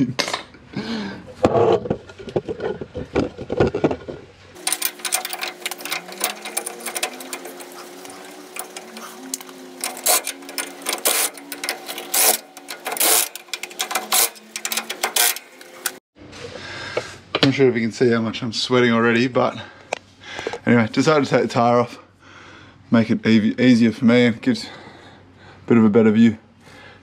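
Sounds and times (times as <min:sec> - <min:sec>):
hand tools clanking on metal: 0:04.6 - 0:16.0
steady hum: 0:04.6 - 0:16.0.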